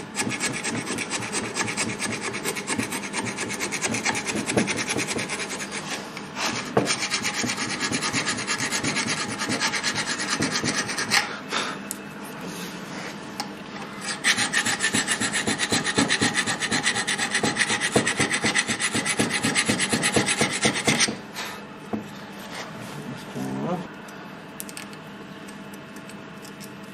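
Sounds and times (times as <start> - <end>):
hand file rasping on metal: 0.2 - 11.3, 14.0 - 21.2.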